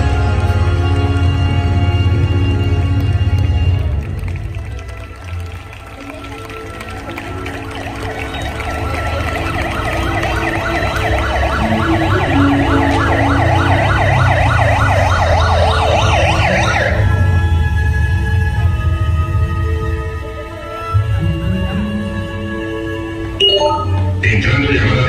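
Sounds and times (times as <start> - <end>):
siren yelping: 7.2 - 17.6.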